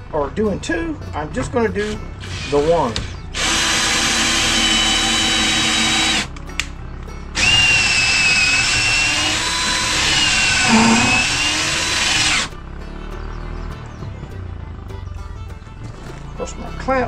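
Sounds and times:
drill whining through wood: 1.8s - 6.3s, 7.4s - 12.5s.

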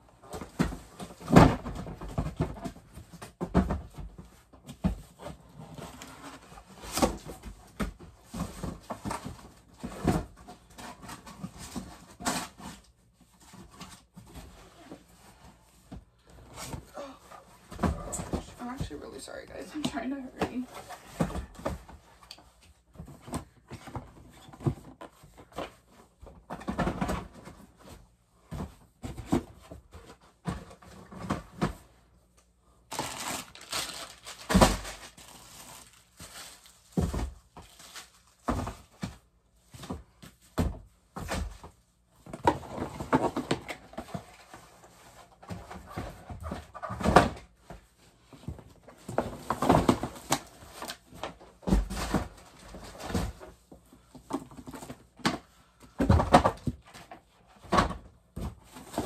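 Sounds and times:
items knocking in cardboard box: 0.2s - 12.8s, 15.9s - 18.9s, 22.9s - 31.9s, 36.2s - 37.8s, 38.4s - 59.0s.

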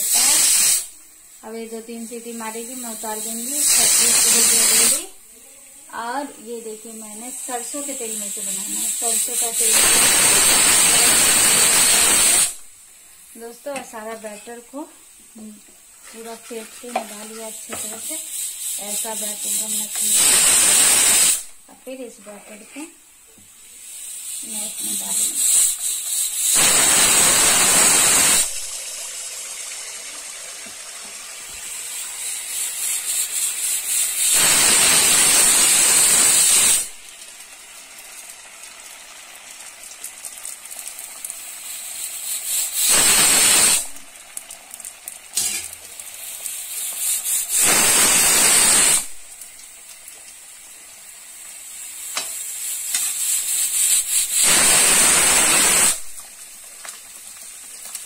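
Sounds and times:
pressure cooker whistling: 0.0s - 1.0s, 2.2s - 5.0s, 7.4s - 12.6s, 17.6s - 21.5s, 23.8s - 28.9s, 31.5s - 37.0s, 41.5s - 44.0s, 46.2s - 49.2s, 51.6s - 56.2s
batter deep-frying sizzle: 0.0s - 58.0s.

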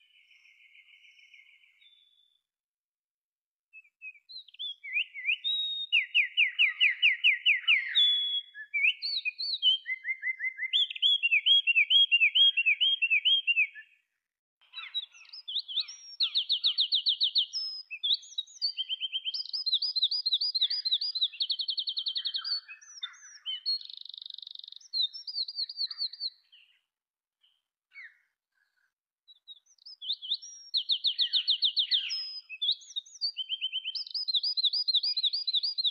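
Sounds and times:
wren singing trills: 14.6s - 28.2s, 29.3s - 35.9s.

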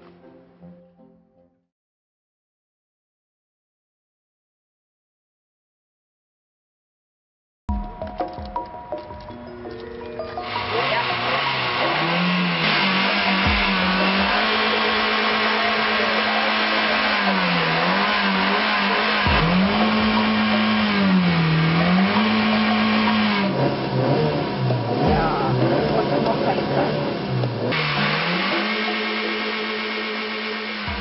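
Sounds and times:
car engine revving: 10.4s - 31.0s.

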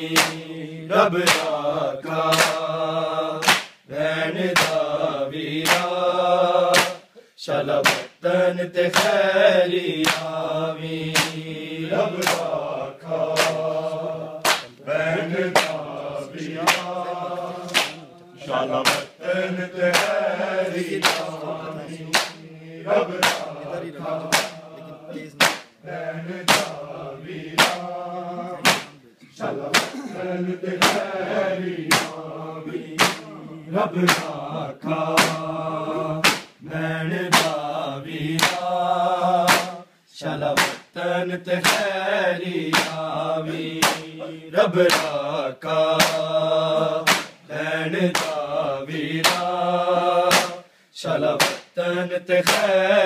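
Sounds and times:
men chanting together: 0.0s - 53.0s
hand slaps on bare chests: 0.1s - 0.5s, 1.2s - 1.6s, 2.2s - 2.7s, 3.4s - 3.9s, 4.5s - 4.9s, 5.6s - 6.0s, 6.7s - 7.1s, 7.8s - 8.2s, 8.9s - 9.2s, 10.0s - 10.4s, 11.1s - 11.5s, 12.1s - 12.6s, 13.2s - 14.8s, 15.5s - 17.0s, 17.6s - 18.1s, 18.8s - 19.2s, 19.8s - 20.3s, 20.9s - 21.4s, 22.0s - 22.5s, 23.1s - 25.8s, 26.4s - 26.8s, 27.5s - 27.9s, 28.6s - 29.0s, 29.6s - 30.0s, 30.8s - 31.1s, 31.8s - 32.3s, 32.9s - 33.4s, 34.0s - 34.4s, 35.0s - 35.5s, 36.2s - 36.6s, 37.3s - 37.7s, 38.3s - 38.7s, 39.4s - 39.8s, 40.4s - 40.9s, 41.6s - 41.9s, 42.6s - 44.2s, 44.8s - 45.2s, 45.9s - 46.3s, 47.0s - 47.4s, 48.1s - 48.5s, 49.2s - 49.6s, 50.3s - 50.6s, 51.3s - 51.8s, 52.4s - 52.8s.

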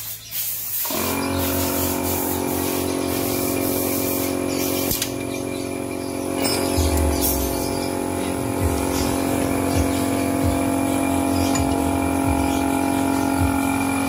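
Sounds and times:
hiss: 0.0s - 5.1s
steady machine hum: 0.8s - 14.0s
sharp click: 4.8s - 5.2s.

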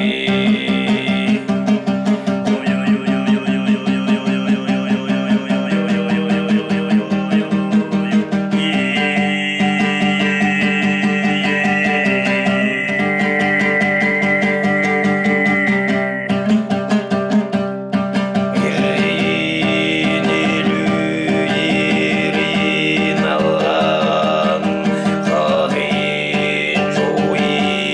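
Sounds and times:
throat singing drone: 0.0s - 17.0s, 18.5s - 27.9s
strummed string instrument: 0.0s - 27.9s
whistling overtone melody: 8.8s - 17.0s.

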